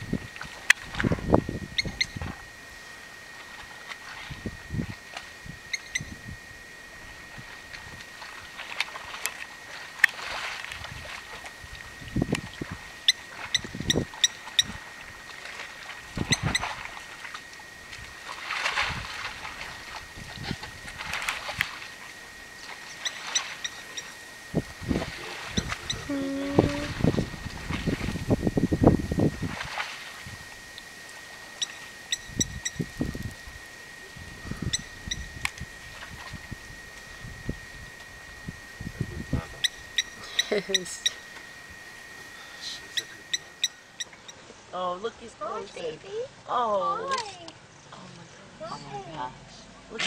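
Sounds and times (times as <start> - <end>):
high-pitched hum: 0.0 - 50.0
mud sloshing: 7.0 - 28.3, 29.3 - 31.8.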